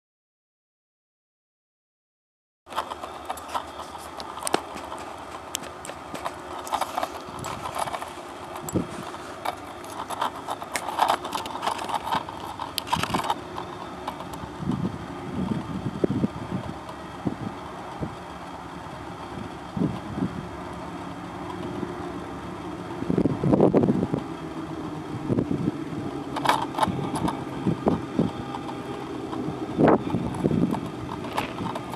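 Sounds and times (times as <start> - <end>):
sharp clicks and crackle: 2.7 - 14.9, 21.4 - 21.8, 26.2 - 31.9
distant freight train rumble: 2.7 - 31.9.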